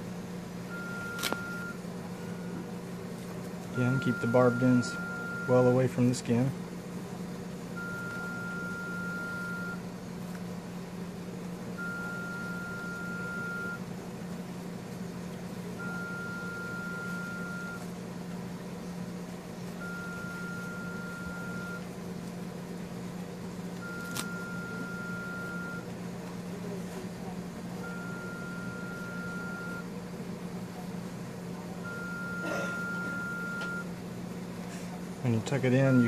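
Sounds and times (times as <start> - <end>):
steady low hum: 0.0 - 36.0
electronic alarm beeping: 0.7 - 1.8, 3.8 - 5.8, 7.8 - 9.8, 11.8 - 13.8, 15.8 - 17.8, 19.8 - 21.8, 23.8 - 25.8, 27.8 - 29.9, 31.8 - 33.9, 35.8 - 36.0.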